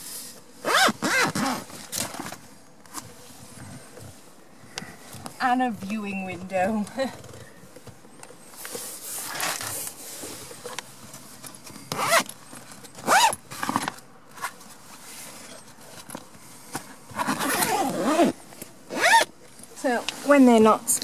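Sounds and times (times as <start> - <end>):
zip being pulled: 0.6 - 2.3, 9.2 - 9.8, 11.9 - 12.3, 13.0 - 14.5, 17.1 - 19.3.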